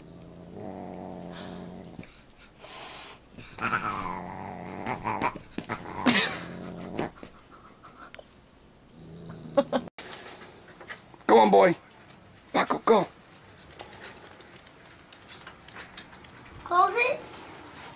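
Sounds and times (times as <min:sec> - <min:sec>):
dog growling: 0:00.0 - 0:02.7, 0:03.4 - 0:08.0, 0:08.8 - 0:09.9.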